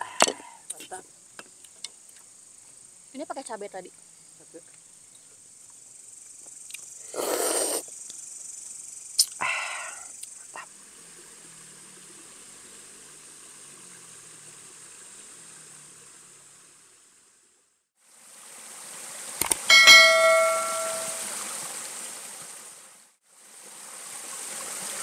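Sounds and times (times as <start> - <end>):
crickets chirping: 0.0 - 17.3, 19.4 - 21.9.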